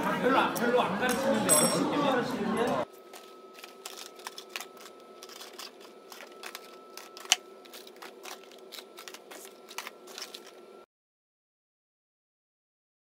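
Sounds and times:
faint steady whine: 0:02.8 - 0:10.9.

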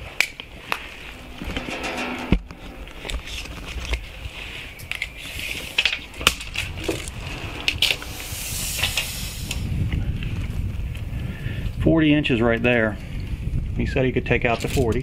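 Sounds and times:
low rumble: 0:00.4 - 0:05.0, 0:06.2 - 0:10.9
scraping rustle: 0:00.5 - 0:09.7.

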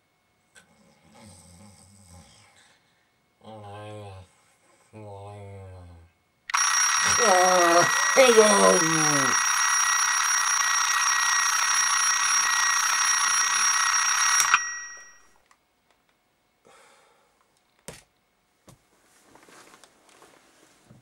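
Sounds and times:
bell alarm clock ringing: 0:06.5 - 0:15.4
alarm clock switch click: 0:11.1 - 0:15.1
bedclothes rustling: 0:18.8 - 0:21.0.

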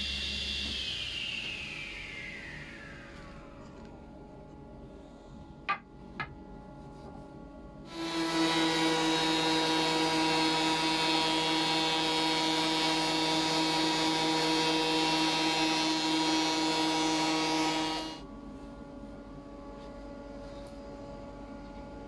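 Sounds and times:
thickness planer whining: 0:00.0 - 0:04.0, 0:07.9 - 0:18.2.

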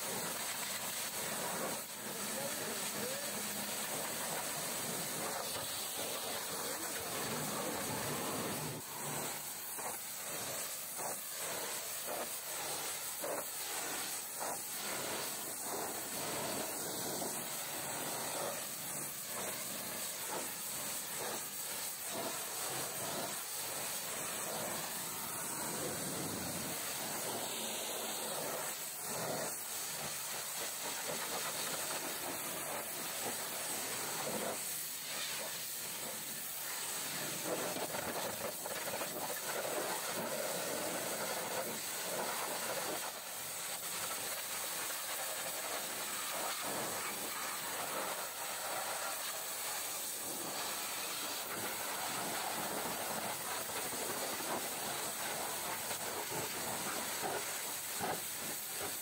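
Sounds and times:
pressure washer jet spraying: 0:00.0 - 0:59.0.

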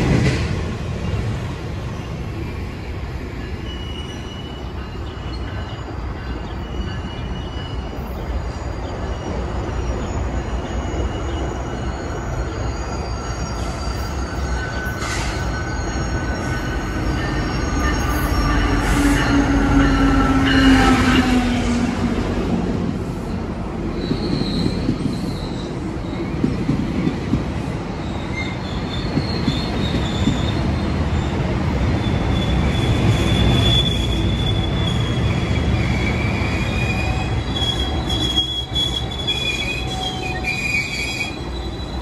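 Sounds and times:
train wheels rumbling on rail: 0:00.0 - 0:42.0
high-pitched wheel squeals: 0:03.5 - 0:21.2, 0:32.0 - 0:42.0.

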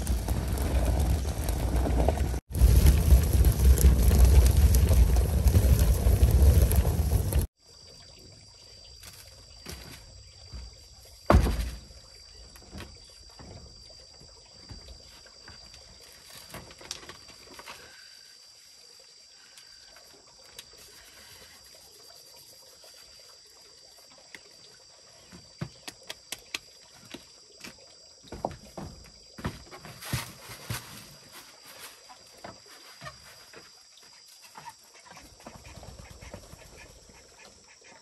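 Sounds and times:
stones knocking and scraping: 0:00.0 - 0:07.5
millstone thump on wooden deck: 0:11.3 - 0:11.9.

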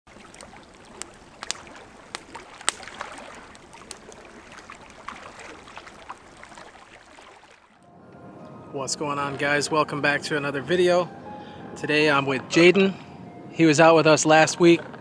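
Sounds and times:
campfire crackling and popping: 0:00.1 - 0:07.8
water lapping on shore: 0:00.1 - 0:07.9.

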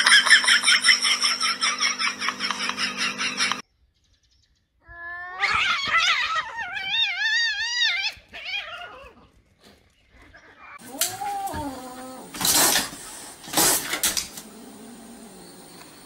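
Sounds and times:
cat yowling: 0:04.9 - 0:09.2, 0:10.6 - 0:12.3.

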